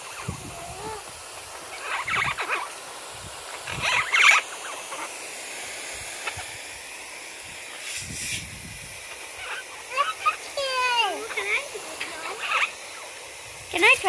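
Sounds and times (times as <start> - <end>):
parrots squawking: 0.0 - 2.8, 3.5 - 5.2, 9.3 - 10.6, 11.2 - 13.2
water spray hissing: 0.0 - 14.0.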